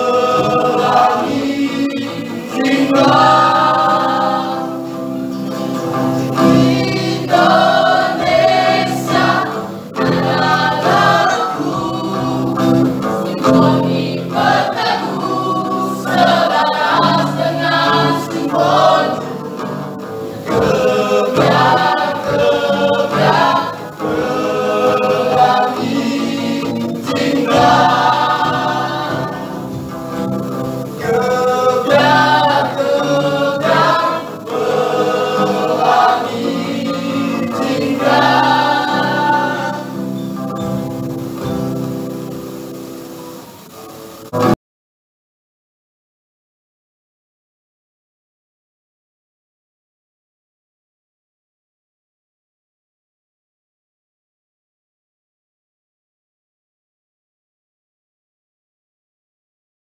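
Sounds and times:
mixed choir singing: 0:00.0 - 0:43.0.

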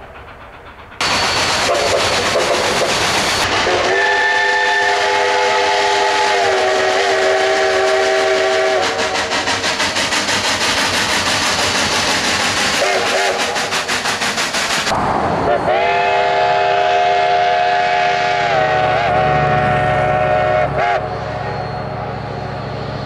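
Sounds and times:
steam locomotive chuffing: 0:00.0 - 0:23.0
steam whistle chord: 0:03.6 - 0:09.3, 0:15.5 - 0:22.4.

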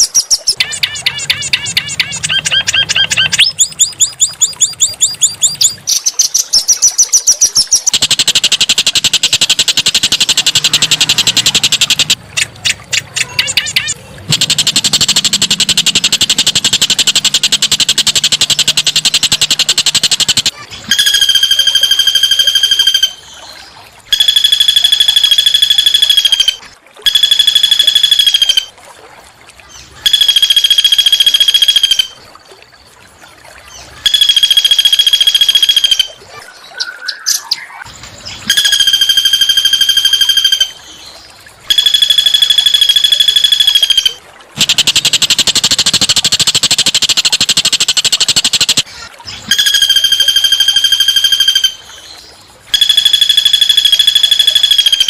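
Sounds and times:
songbird buzzy trill: 0:00.0 - 0:12.2, 0:12.9 - 0:23.4, 0:41.7 - 0:55.0.

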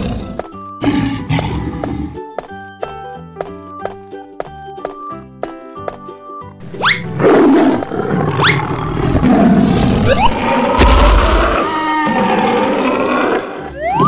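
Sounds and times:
tiger roaring and growling: 0:00.0 - 0:02.2, 0:07.1 - 0:13.6.

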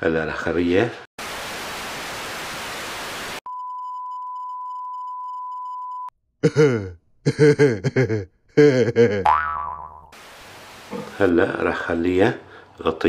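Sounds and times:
tv static hiss: 0:01.2 - 0:03.4, 0:10.2 - 0:11.4
high censor bleep: 0:03.5 - 0:06.1.

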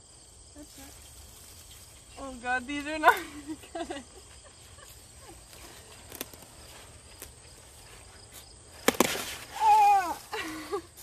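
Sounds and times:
crackle of stalk and leaves: 0:04.8 - 0:07.4
woman's high exclamation: 0:09.6 - 0:10.3.

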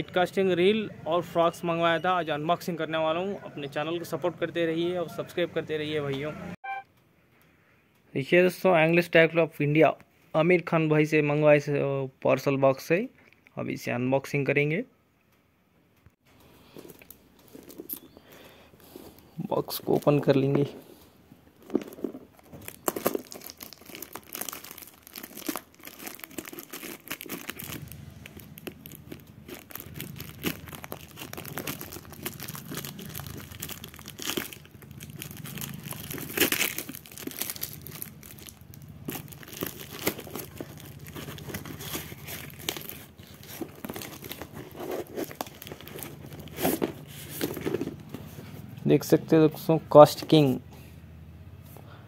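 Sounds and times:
paper wrapping crinkling and tearing: 0:16.7 - 0:20.8, 0:21.6 - 0:48.4.

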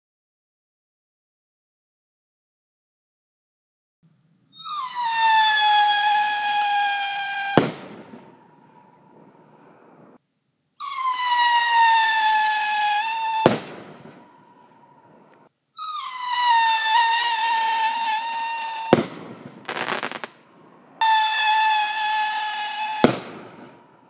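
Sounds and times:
whistling rocket descending: 0:04.5 - 0:10.2, 0:10.8 - 0:24.0
rocket bursting bang: 0:07.5 - 0:08.5, 0:13.3 - 0:14.3, 0:18.9 - 0:20.4, 0:21.0 - 0:23.9.

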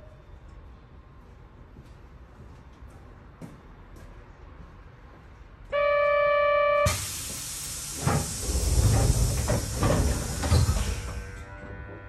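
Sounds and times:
departure buzzer: 0:05.7 - 0:07.0
compressed air hissing: 0:06.9 - 0:11.1.

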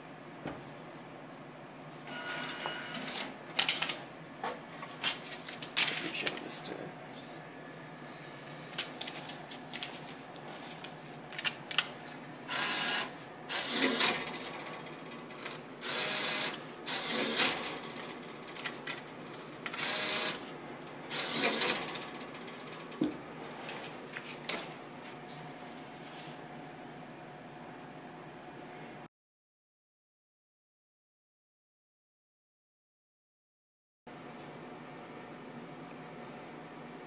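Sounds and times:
bill acceptor whirring: 0:02.1 - 0:04.0, 0:12.4 - 0:24.0.

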